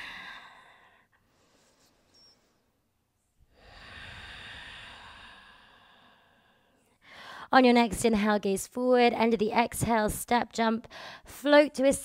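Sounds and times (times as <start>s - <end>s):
woman breathing slowly and deeply: 0.0s - 2.4s, 3.4s - 7.5s, 10.9s - 11.3s.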